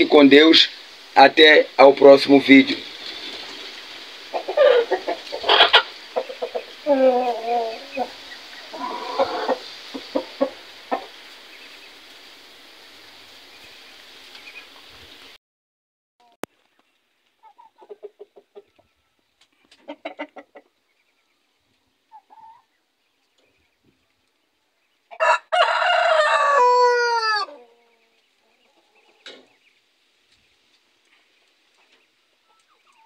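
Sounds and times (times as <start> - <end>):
chickens clucking: 0.0 - 12.1, 17.4 - 21.4, 22.0 - 24.1, 27.3 - 29.7, 30.3 - 33.0
rooster crowing: 4.6 - 5.9, 8.7 - 9.6, 25.2 - 27.7.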